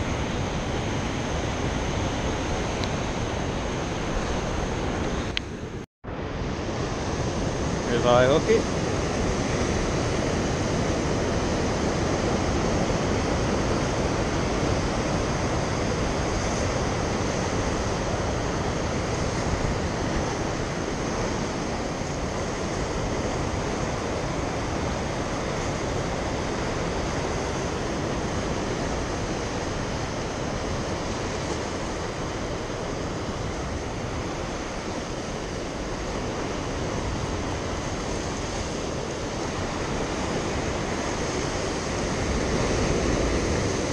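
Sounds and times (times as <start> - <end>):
ocean surf against rocky shore: 0.0 - 43.9.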